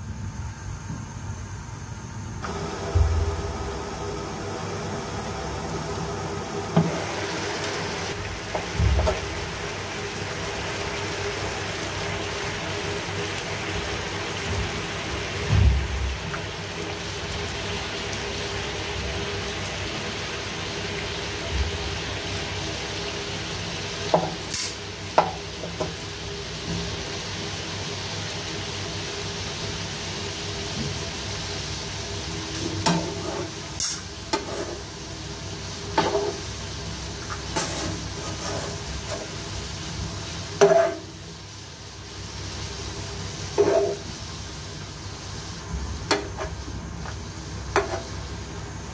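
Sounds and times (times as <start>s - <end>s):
water boiling hard in pan: 2.4s - 48.9s.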